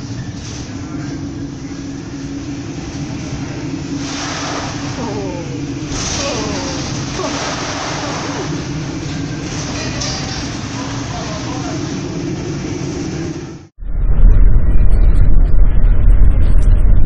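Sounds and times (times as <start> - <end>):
ship engine hum: 0.0 - 13.7
waves crashing over bow: 4.0 - 9.7.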